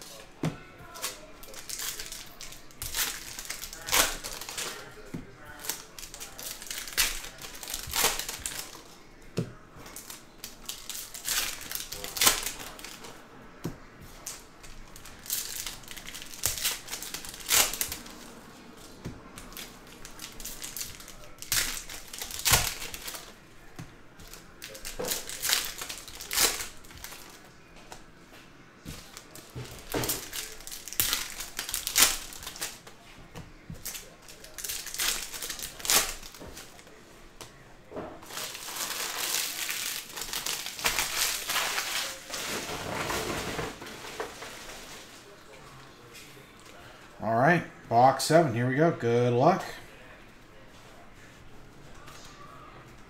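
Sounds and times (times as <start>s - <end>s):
foil wrappers crinkling and tearing: 0.0s - 9.0s, 9.8s - 13.2s, 14.1s - 28.1s, 28.8s - 33.0s, 33.7s - 37.0s, 38.2s - 45.5s.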